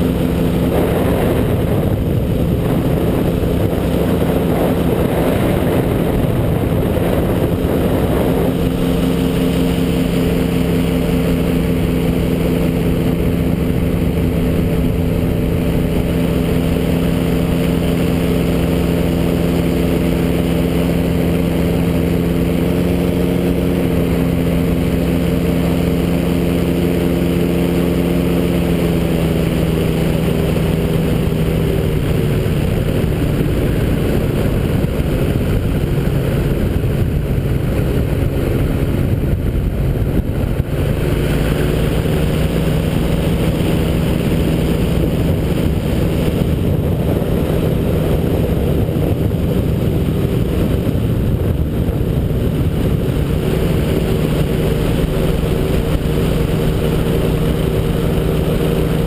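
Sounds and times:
engine running steadily: 0.0s - 59.0s
wind rushing over microphone: 0.0s - 59.0s.

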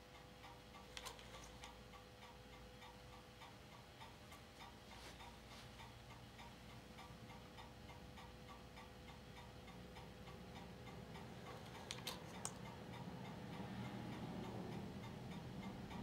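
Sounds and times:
light even ticking: 0.0s - 16.0s
projector hum: 0.0s - 16.0s
filmstrip winding clicks: 11.6s - 12.7s.

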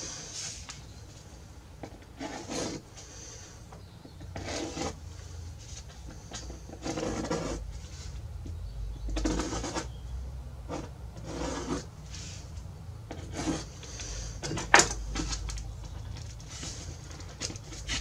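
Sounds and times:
hand tool scraping wood: 2.1s - 3.4s, 4.2s - 8.2s, 9.1s - 9.9s, 10.7s - 12.4s, 13.1s - 15.5s, 16.4s - 18.0s.

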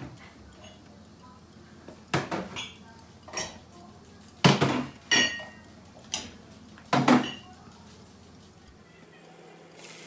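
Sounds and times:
cups and glasses clinking: 4.6s - 5.6s.

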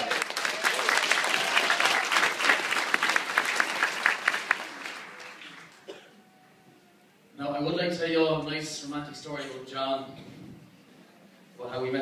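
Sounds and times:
crowd applauding: 0.0s - 6.3s.

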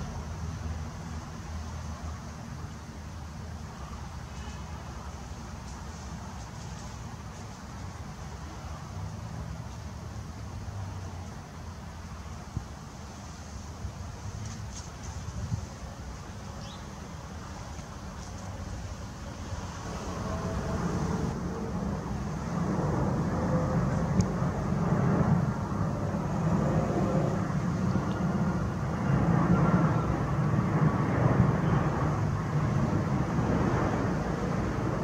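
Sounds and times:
jet engines passing overhead: 0.0s - 35.0s.

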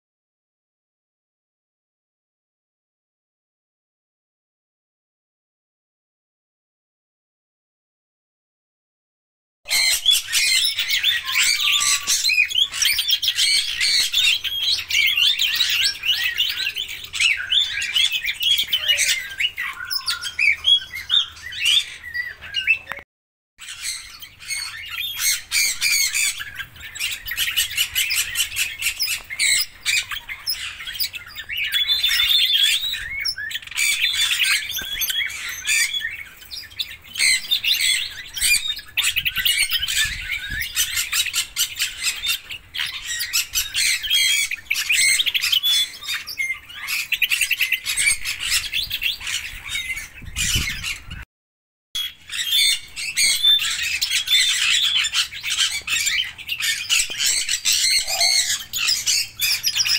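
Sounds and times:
parrots chirping and squawking: 9.7s - 23.0s, 23.6s - 51.2s, 52.0s - 59.9s.

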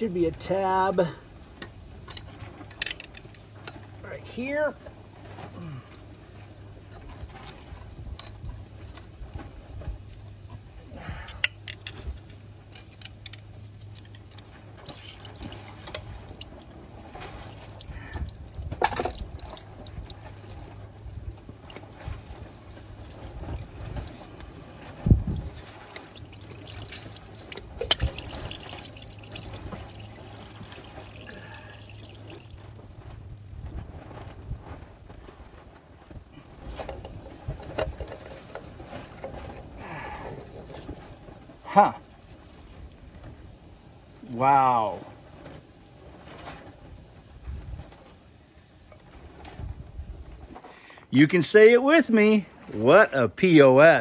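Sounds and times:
low steady hum: 0.0s - 54.0s
metal clicks and knocks: 1.6s - 3.9s
liquid dripping and trickling: 12.7s - 34.8s, 36.2s - 42.4s.

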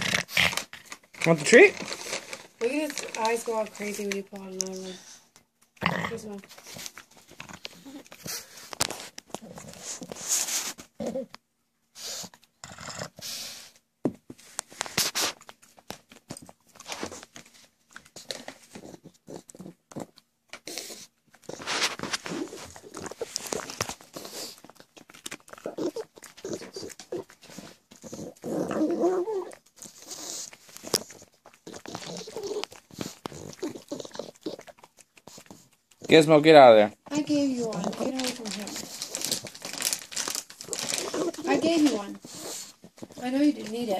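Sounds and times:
dog snorting and grunting: 0.0s - 4.0s, 5.8s - 6.5s, 9.3s - 11.4s, 12.0s - 13.6s, 18.3s - 36.3s, 37.1s - 43.9s.

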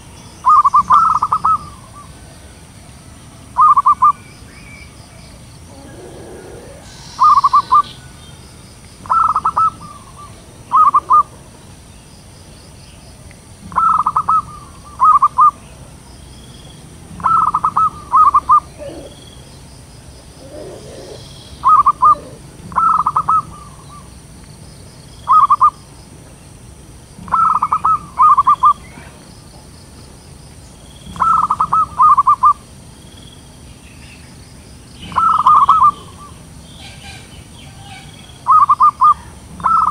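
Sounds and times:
dove cooing: 0.4s - 2.3s, 3.6s - 4.2s, 5.6s - 8.2s, 9.0s - 11.7s, 13.6s - 15.6s, 17.2s - 19.6s, 20.2s - 24.1s, 27.2s - 29.2s, 31.1s - 32.6s, 35.0s - 39.9s.

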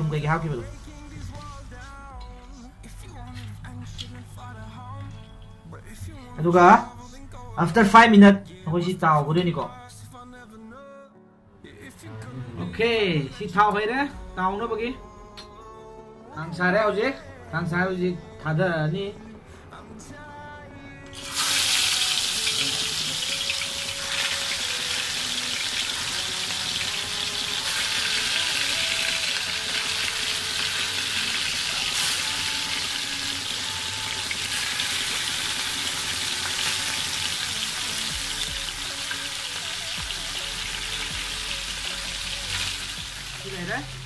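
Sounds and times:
meat sizzling in hot oil: 21.2s - 44.0s.

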